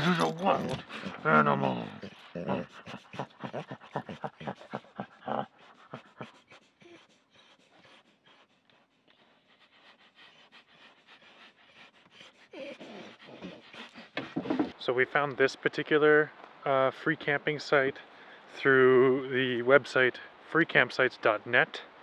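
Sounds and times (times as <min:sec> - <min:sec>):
dog panting: 0:00.0 - 0:14.8.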